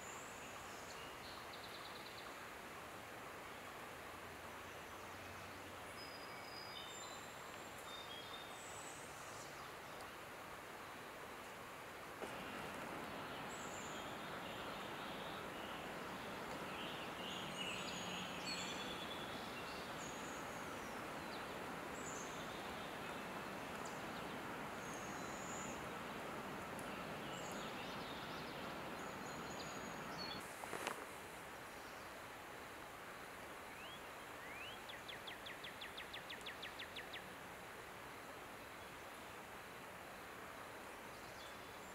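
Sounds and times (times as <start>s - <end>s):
songbird chirps: 0.0s - 2.6s, 4.4s - 11.6s, 12.2s - 31.0s, 33.0s - 37.4s, 38.1s - 41.9s
outdoor background hiss: 0.0s - 41.9s
sharp rustle: 30.4s - 31.3s.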